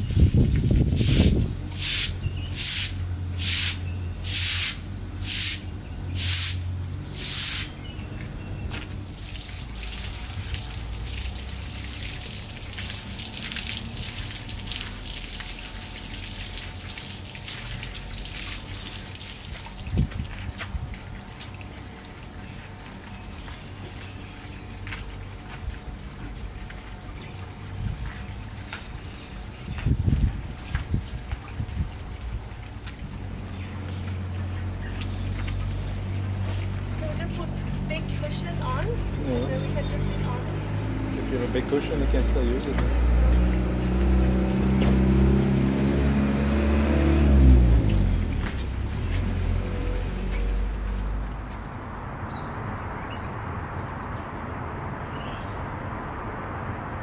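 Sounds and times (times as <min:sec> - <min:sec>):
water spraying in spurts: 0:00.0 - 0:52.2.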